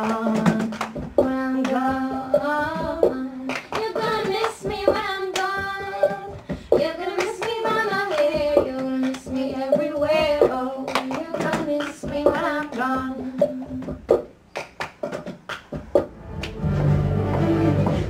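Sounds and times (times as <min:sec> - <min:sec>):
woman singing: 0:00.0 - 0:14.0
hand clapping: 0:00.0 - 0:17.0.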